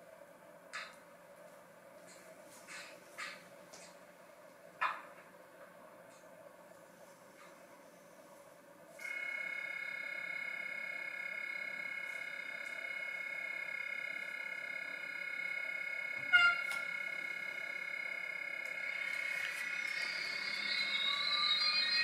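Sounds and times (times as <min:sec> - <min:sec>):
high electrical whine: 0:08.5 - 0:22.0.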